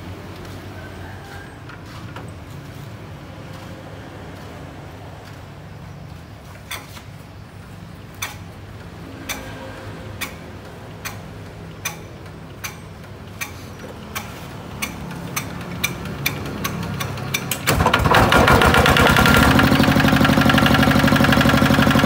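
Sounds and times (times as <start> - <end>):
diesel engine cranked by hand: 8.1 - 22.0.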